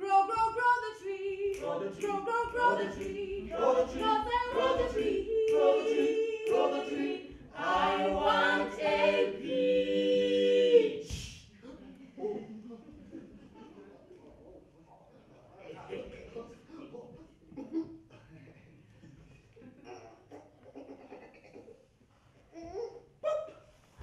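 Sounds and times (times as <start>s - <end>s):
group singing a cappella: 0.0s - 11.5s.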